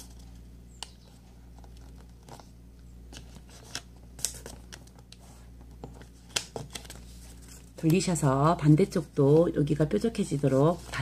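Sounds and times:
faint low hum: 0.0 - 11.0
paper rustling and crinkling: 1.1 - 8.2.

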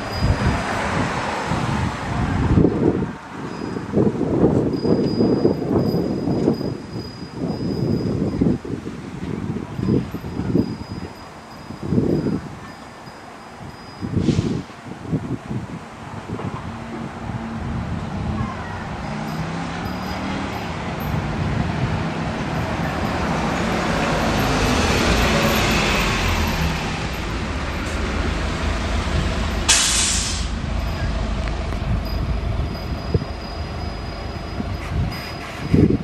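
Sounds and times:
road traffic going by: 0.0 - 36.0
short sharp hiss: 29.7 - 30.6.

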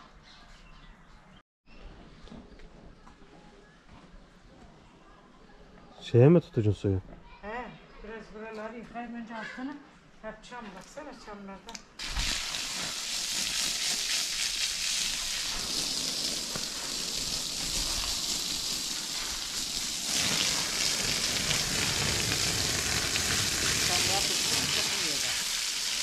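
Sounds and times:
water spraying from hose: 12.0 - 26.0.

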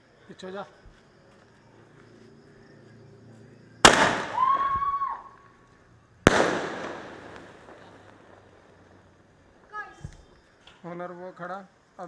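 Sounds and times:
firecracker bangs: 3.8 - 5.3, 6.2 - 8.5.

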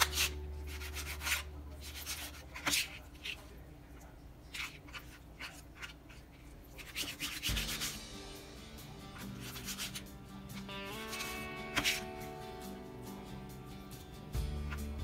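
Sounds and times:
knife slicing meat on a board: 0.0 - 3.3, 6.8 - 8.0, 11.1 - 12.0
background music: 7.3 - 15.0.

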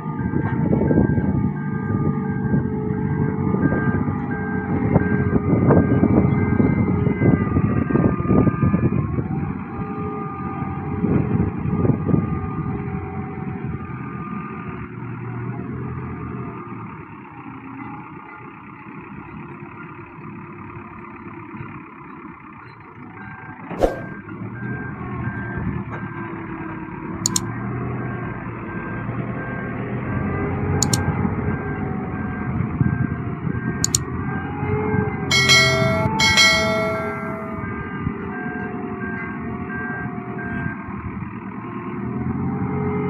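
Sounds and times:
reversing alarm beeping: 35.3 - 37.5.

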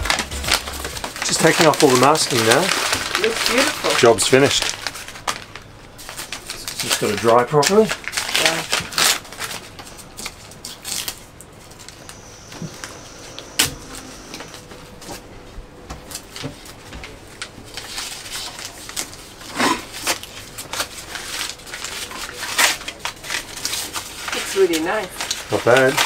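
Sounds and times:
masking tape peeling: 0.0 - 14.6, 17.4 - 26.0.

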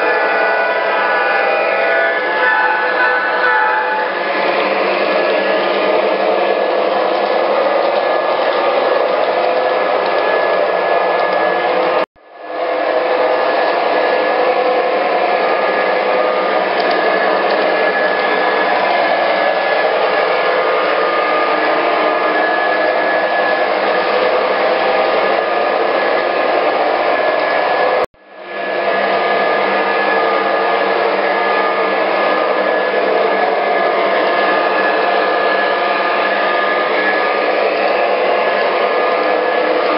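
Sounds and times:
model train whirring rumble: 0.0 - 27.2.

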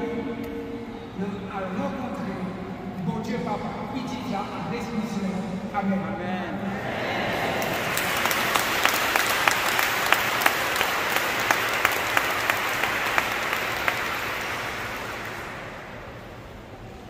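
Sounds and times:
congregation applauding: 7.3 - 16.5
single person clapping: 7.6 - 15.6.

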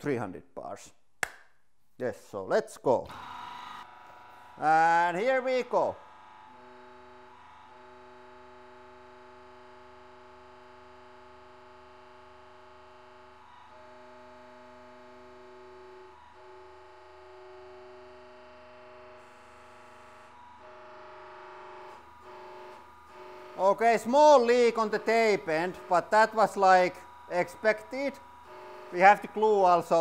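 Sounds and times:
hydraulic pump humming: 18.6 - 30.0.

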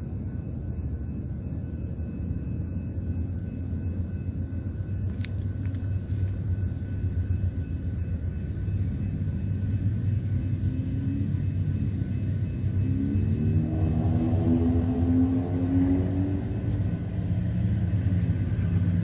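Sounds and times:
diesel locomotive rumbling: 0.0 - 19.0.

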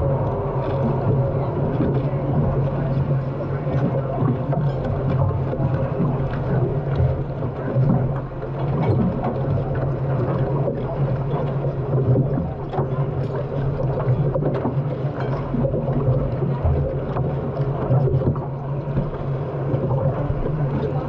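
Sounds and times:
turbine engine droning: 0.0 - 21.0
water rushing: 0.0 - 21.0.

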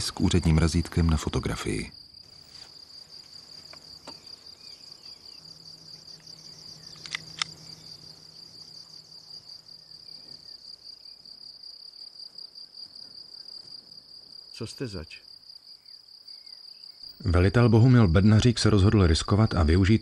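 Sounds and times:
crickets chirping: 0.0 - 20.0
sharp clicks: 6.9 - 7.6.

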